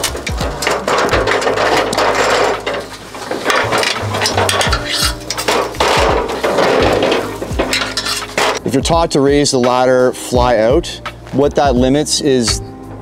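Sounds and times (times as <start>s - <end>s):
metal ladder clanking and scraping: 0.0s - 8.8s.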